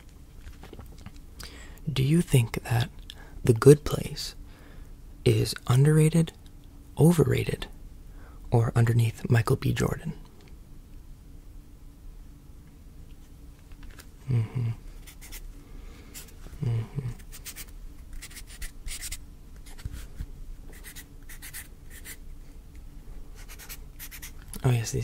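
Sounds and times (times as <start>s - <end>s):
murmured voice sounds: 16.6s - 17.2s
pen writing scratchy strokes: 17.4s - 20.1s, 20.7s - 22.2s, 23.4s - 24.4s.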